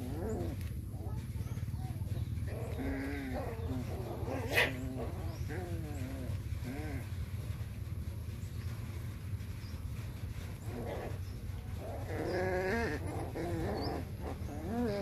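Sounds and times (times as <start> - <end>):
puppies yelping: 0.0 - 7.2, 10.6 - 15.0
steady low hum: 0.0 - 15.0.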